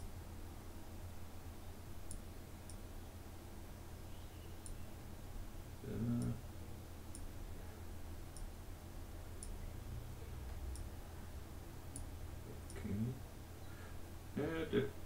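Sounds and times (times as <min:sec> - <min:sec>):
low steady hum: 0:00.0 - 0:15.0
faint mouse clicks: 0:02.0 - 0:02.8, 0:04.6 - 0:04.9, 0:07.1 - 0:07.3, 0:08.3 - 0:08.5, 0:09.4 - 0:09.6, 0:11.9 - 0:12.8.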